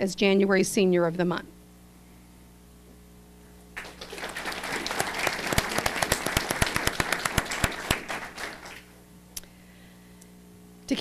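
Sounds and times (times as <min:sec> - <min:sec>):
audience applauding: 0:03.8 - 0:08.9.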